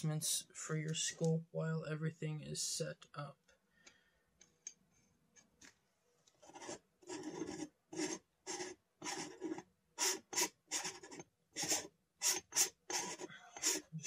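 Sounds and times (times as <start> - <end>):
rasping rubs of lens twisting: 6.4 - 14.0.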